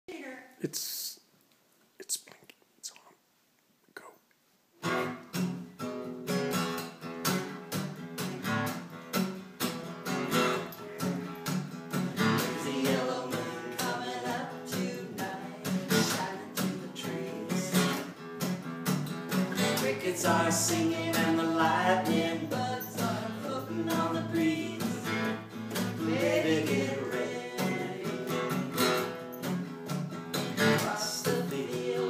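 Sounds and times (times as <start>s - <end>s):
acoustic guitars strumming: 4.8s - 32.0s.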